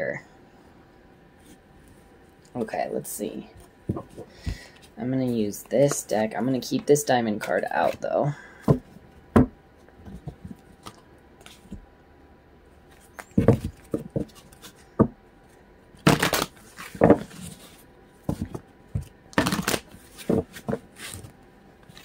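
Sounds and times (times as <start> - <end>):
cards tapping and rustling: 13.0 - 15.1, 18.2 - 21.3.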